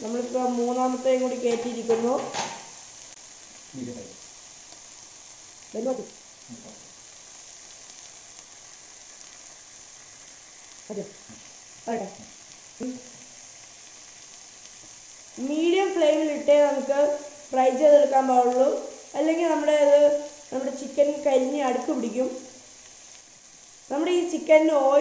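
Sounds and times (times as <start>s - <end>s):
chicken sizzling on a griddle: 0.0s - 25.0s.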